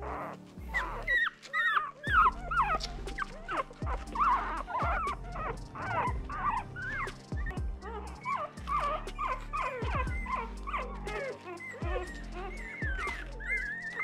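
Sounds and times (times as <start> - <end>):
puppies whimpering and squealing: 0.0 - 14.0.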